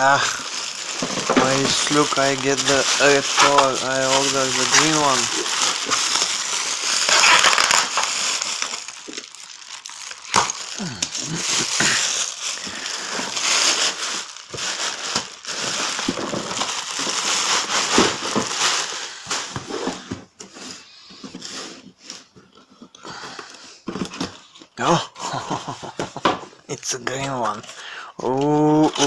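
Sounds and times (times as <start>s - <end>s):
plastic packaging crinkling: 0.0s - 19.9s.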